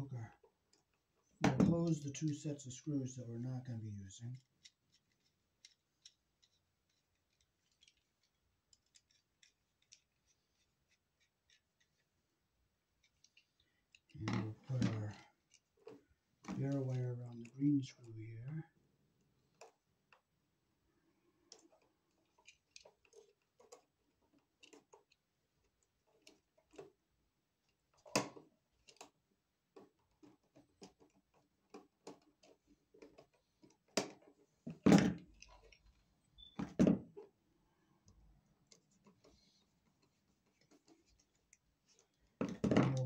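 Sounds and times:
tool and wire clicks and scrapes: 4.4 - 12.2, 13.0 - 17.6, 21.5 - 27.0, 29.8 - 37.3.

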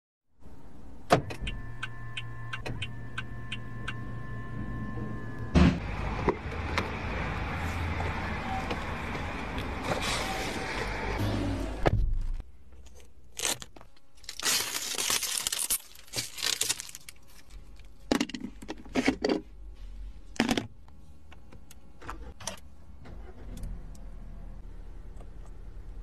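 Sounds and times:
low steady hum: 11.8 - 26.0
plastic wrap crinkling: 13.3 - 18.0.

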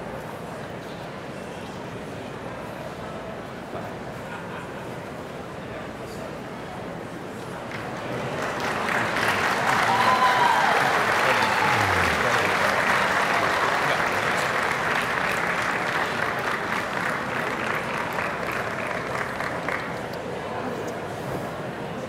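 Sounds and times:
large crowd applauding: 7.7 - 20.1
voice calling out: 11.3 - 12.6.

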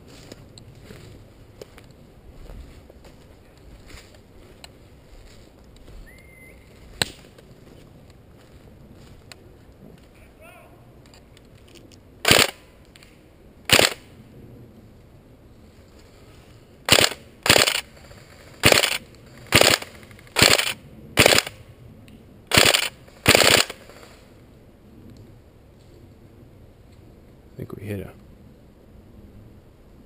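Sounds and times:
airsoft rifle full-auto bursts: 12.2 - 12.6, 13.7 - 14.0, 16.9 - 21.6, 22.5 - 24.2.

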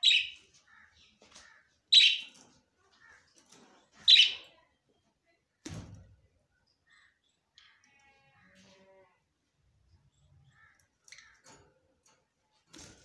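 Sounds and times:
budgerigars chirping: 2.0 - 2.3.

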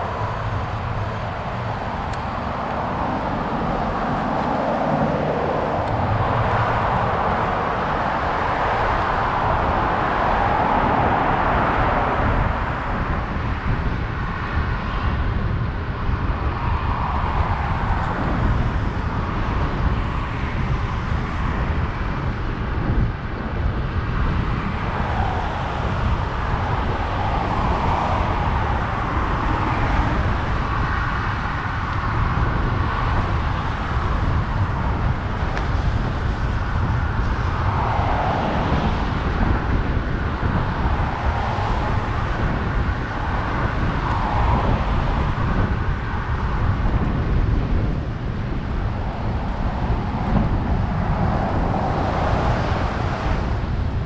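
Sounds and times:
cars passing: 0.0 - 54.0
wind on microphone: 0.0 - 54.0.

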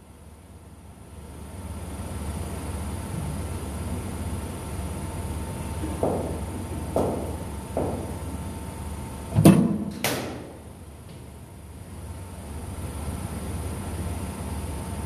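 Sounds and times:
bat striking ball: 5.8 - 8.3, 9.4 - 10.6
cricket ball thudding: 5.8 - 8.3.

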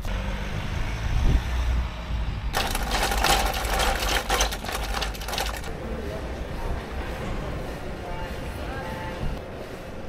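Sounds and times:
luggage trolley wheels rattling: 2.6 - 5.8.

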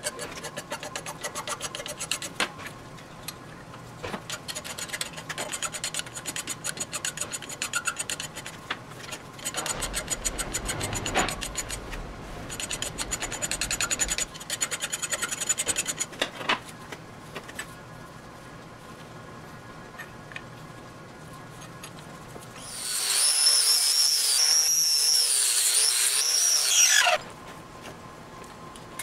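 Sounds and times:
hand file rasping on steel: 0.0 - 2.4, 4.3 - 8.6, 12.5 - 16.1.

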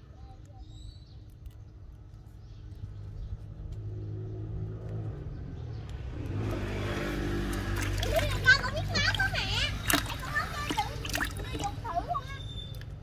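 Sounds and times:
motor engine humming: 6.3 - 12.3.

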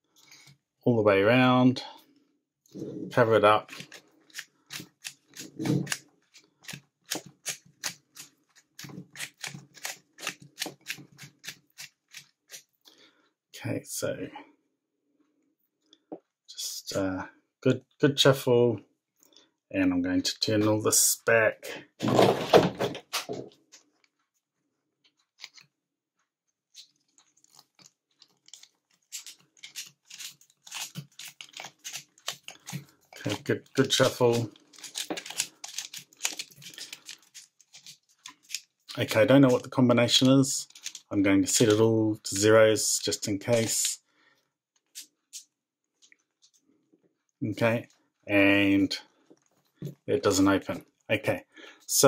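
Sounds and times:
handling rustle: 26.7 - 41.8.

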